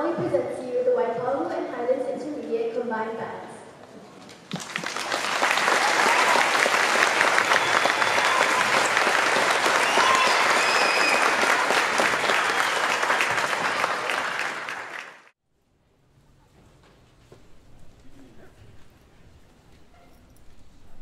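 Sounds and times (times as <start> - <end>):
large audience applauding: 4.5 - 15.3.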